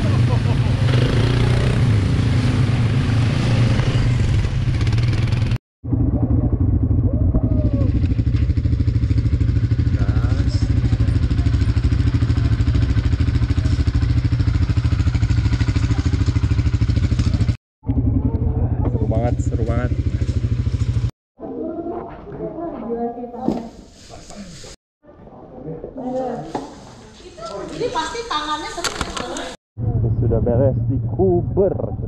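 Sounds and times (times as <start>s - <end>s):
vehicle engine running: 0.0s - 21.1s.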